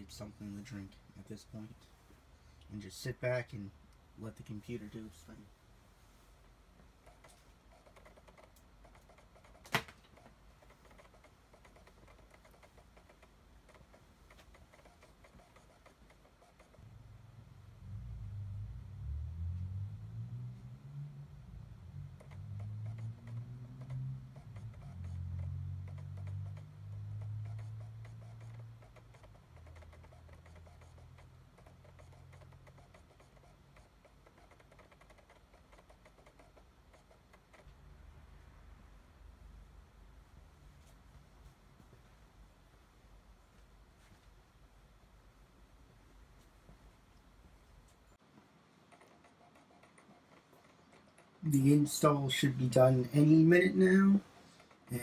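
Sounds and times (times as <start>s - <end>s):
faint irregular clicking: 6.8s - 16.8s, 22.1s - 37.8s, 45.3s - 51.4s
low hum: 16.2s - 48.2s.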